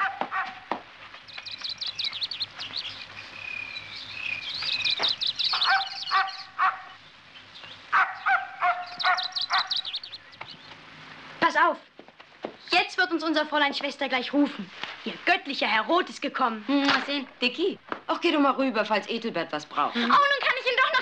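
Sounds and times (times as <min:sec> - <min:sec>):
birds chirping and twittering: 0:00.6 - 0:11.4
dog barking: 0:05.5 - 0:07.0, 0:07.9 - 0:09.8.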